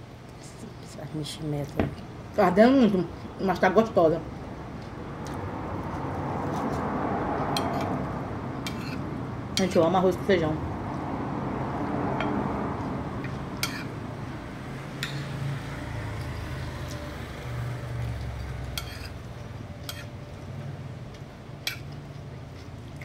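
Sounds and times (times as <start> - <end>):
metal spoon scraping a plate: 8.6 - 9.0, 13.6 - 13.9, 18.8 - 19.2, 19.8 - 20.2.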